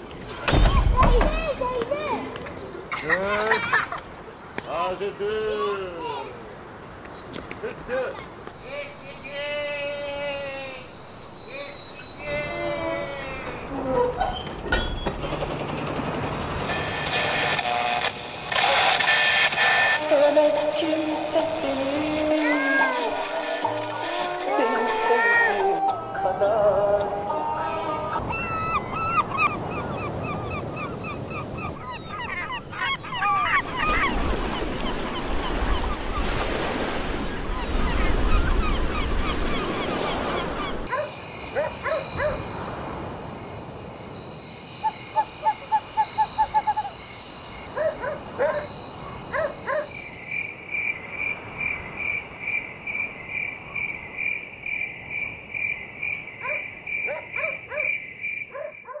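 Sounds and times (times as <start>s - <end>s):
birdsong: 0.0s - 17.0s, 26.3s - 43.1s, 44.5s - 52.2s
night insect chirping: 2.9s - 17.4s, 24.6s - 59.0s
shrill insect drone: 19.2s - 28.7s, 40.9s - 50.5s.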